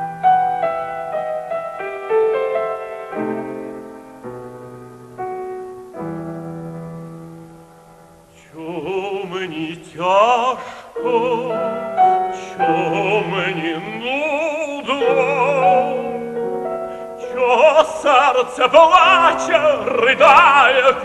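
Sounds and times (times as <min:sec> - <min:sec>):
grand piano: 0:00.0 - 0:21.0
operatic tenor singing: 0:08.4 - 0:21.0.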